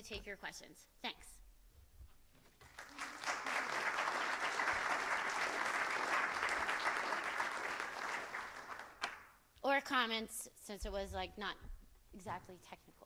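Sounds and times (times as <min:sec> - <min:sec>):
audience applauding: 0:02.6 - 0:09.3.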